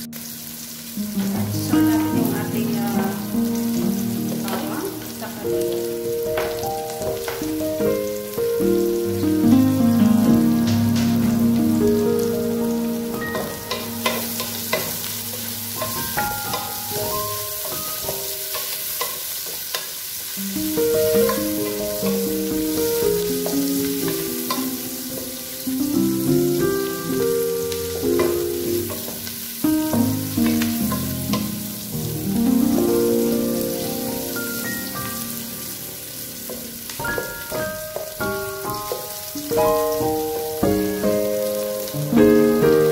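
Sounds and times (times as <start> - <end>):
background music: 0.0 - 18.6
food sizzling in hot oil: 0.0 - 42.9.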